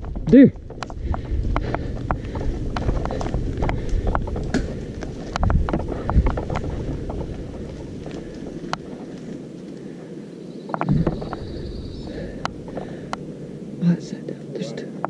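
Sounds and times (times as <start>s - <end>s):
tyres rumbling on dirt: 0.0s - 10.0s, 10.7s - 14.2s
bike clicking and rattling: 0.0s - 13.5s
wind buffeting microphone: 0.0s - 14.6s.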